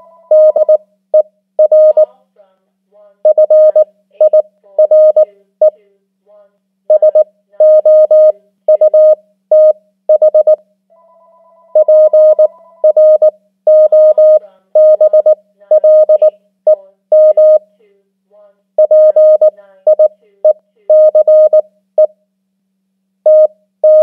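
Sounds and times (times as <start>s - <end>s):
morse code beeps: 0.0s - 0.8s, 1.6s - 2.1s, 3.3s - 5.2s, 6.9s - 10.6s, 11.8s - 16.3s, 17.2s - 17.6s, 18.8s - 20.1s, 20.9s - 22.1s, 23.3s - 24.0s.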